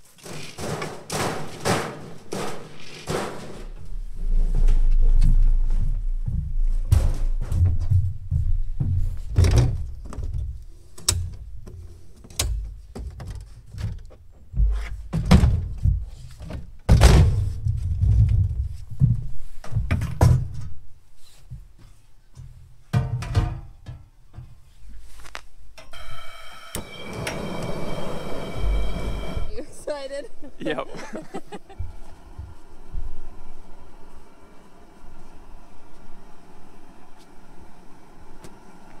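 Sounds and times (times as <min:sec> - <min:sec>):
hand truck bumping over boards: 0:00.1 - 0:03.9
low rumble: 0:03.8 - 0:09.0, 0:26.8 - 0:30.6.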